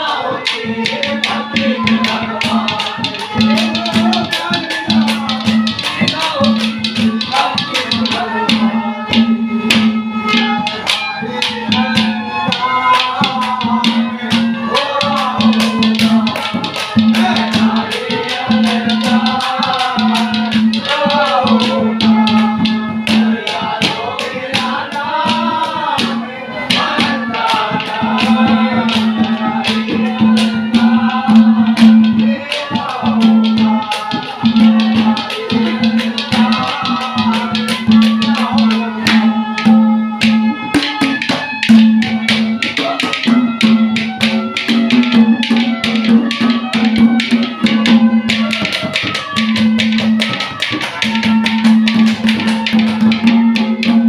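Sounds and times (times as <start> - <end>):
man singing: 0.0 - 9.4, 10.3 - 43.8
rattling percussion: 0.0 - 54.0.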